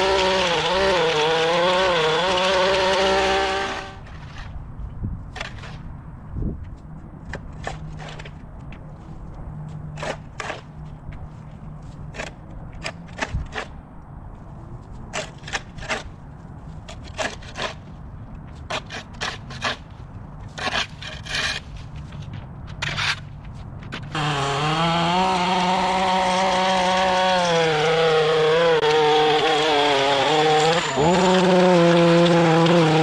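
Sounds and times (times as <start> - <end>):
scraping strokes: 14.9 - 24.0.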